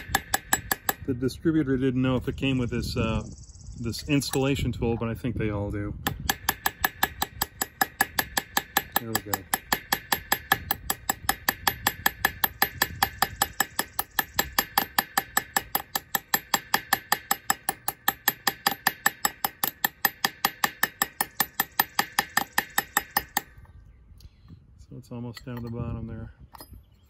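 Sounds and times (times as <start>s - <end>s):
hammer tapping on metal: 0.0s - 1.1s, 6.0s - 23.5s.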